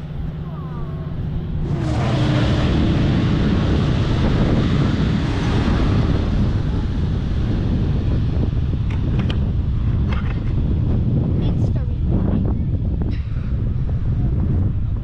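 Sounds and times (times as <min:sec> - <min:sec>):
train rumbling past: 0:00.0 - 0:15.0
wind buffeting microphone: 0:00.0 - 0:15.0.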